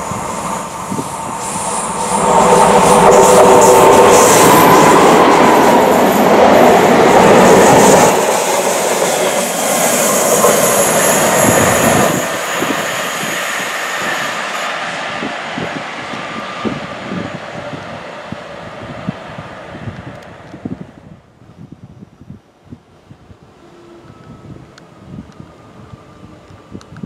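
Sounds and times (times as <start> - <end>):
diesel locomotive passing: 0.0 - 21.2, 23.0 - 27.0.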